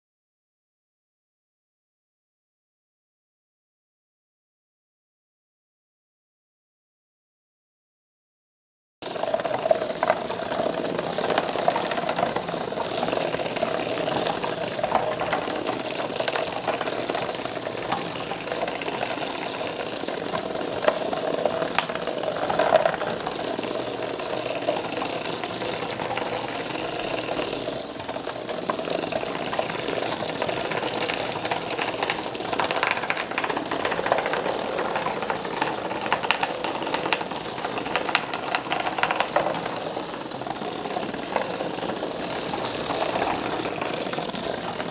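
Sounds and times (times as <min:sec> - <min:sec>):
toy bugs buzzing: 0:09.0 - 0:44.9.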